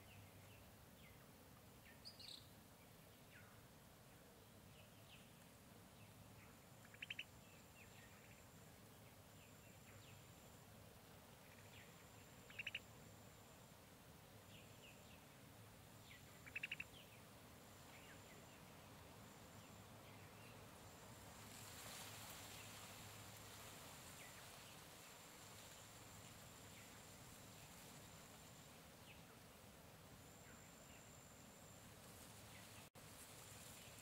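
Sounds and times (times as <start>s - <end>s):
soft bird chirps: 6.0s - 10.5s, 11.4s - 12.9s, 16.0s - 17.2s
faint high steady tone: 6.0s - 21.5s, 25.7s - 32.9s.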